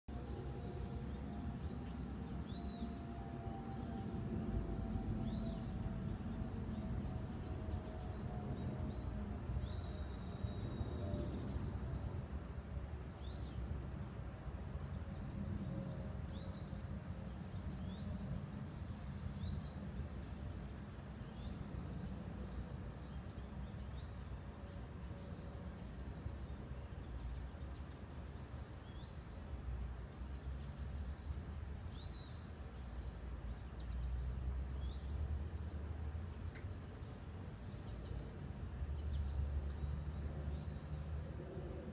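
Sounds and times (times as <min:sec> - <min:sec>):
faint droning tone: 0:00.1 - 0:13.0
steady low rumble: 0:00.1 - 0:25.1.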